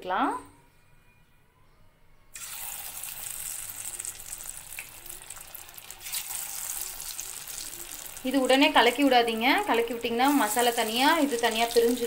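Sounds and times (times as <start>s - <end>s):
hot oil sizzling: 2.4s - 12.0s.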